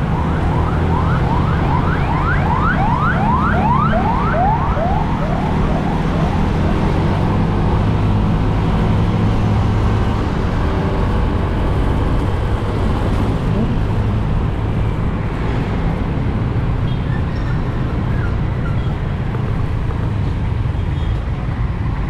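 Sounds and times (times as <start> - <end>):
emergency siren yelping: 0.0 - 8.8
wind: 0.0 - 22.0.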